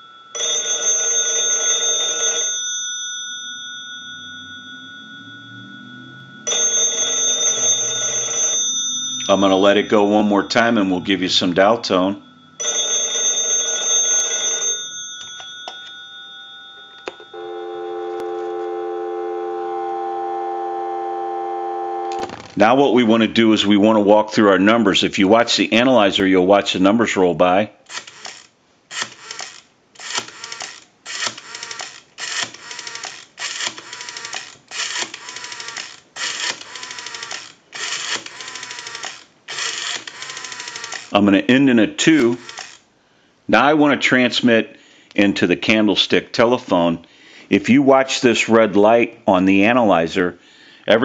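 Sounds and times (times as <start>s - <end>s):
steady dial tone: 0.0s - 11.3s, 12.1s - 22.5s, 35.2s - 41.1s
telephone bells ringing: 0.0s - 22.3s, 32.4s - 42.8s
rotary phone dial pulse clicks: 27.9s - 41.2s, 42.2s - 42.8s.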